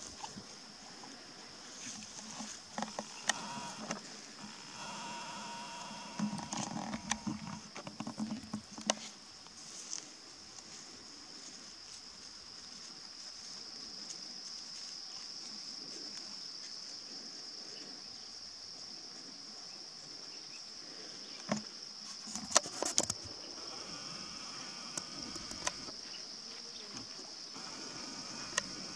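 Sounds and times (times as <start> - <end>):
insects trilling: 0.0 - 28.9
sharp clicks: 2.8 - 8.2, 25.0 - 26.0.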